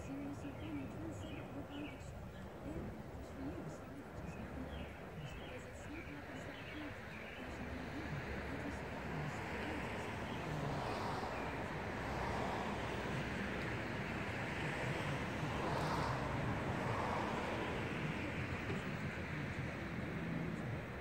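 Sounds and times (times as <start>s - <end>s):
vehicle rumble with hiss: 0.0s - 21.0s.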